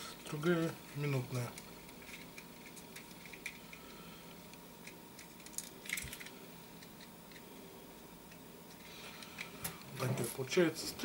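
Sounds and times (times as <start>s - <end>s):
small parts clicking and rattling: 0.4s - 7.5s.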